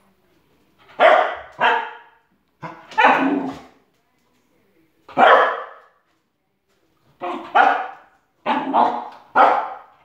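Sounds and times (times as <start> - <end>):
dog barking excitedly: 0.8 - 3.7, 5.1 - 5.9, 7.2 - 10.0.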